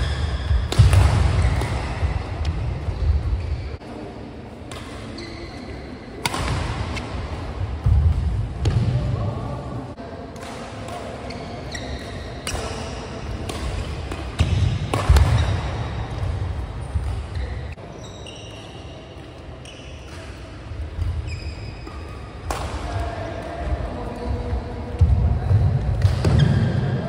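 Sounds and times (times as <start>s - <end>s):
shoes squeaking on court floor: 0.0s - 3.8s, 4.7s - 6.2s, 11.2s - 22.4s
racket striking shuttlecock: 0.6s - 2.6s, 6.2s - 7.0s, 12.4s - 16.3s.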